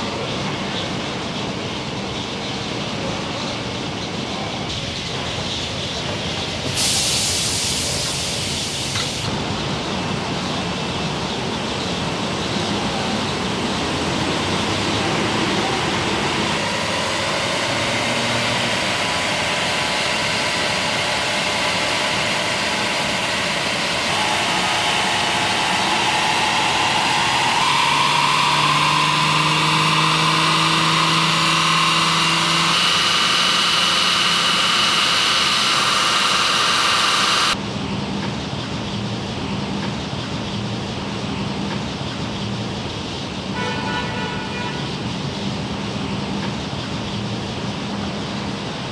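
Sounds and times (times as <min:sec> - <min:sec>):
high hiss: 0:06.6 - 0:09.6, 0:16.4 - 0:37.6
car tyres spinning on rollers: 0:12.6 - 0:37.6.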